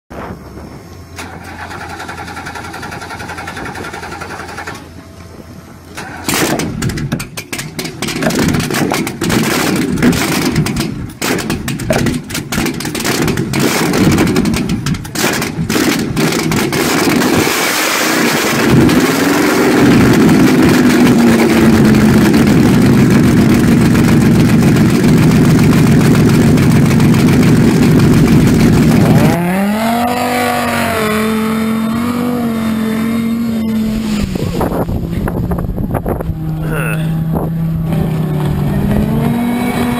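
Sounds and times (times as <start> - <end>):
boat engine starting and idling: 0.2 - 39.9
speedboat running on water: 15.7 - 39.9.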